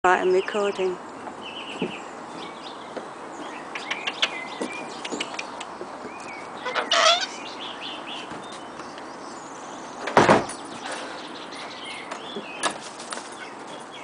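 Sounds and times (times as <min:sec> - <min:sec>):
small birds chirping: 0:00.1 - 0:14.0
cockatoo calling: 0:03.8 - 0:07.8.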